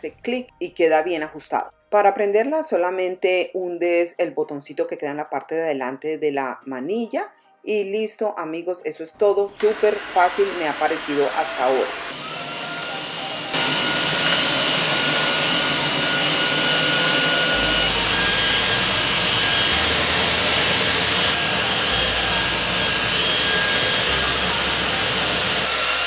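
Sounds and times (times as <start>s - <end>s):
vacuum mop suction and whine: 9.5s - 26.0s.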